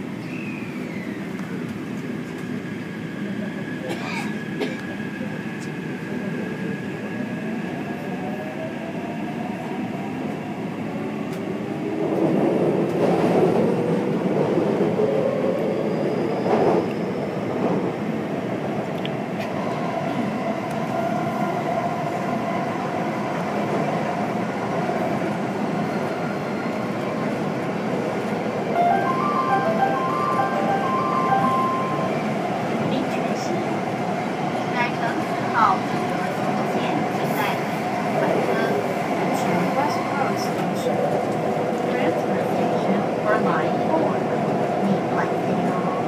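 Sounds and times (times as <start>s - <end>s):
train wheels on rail: 0.0s - 28.7s.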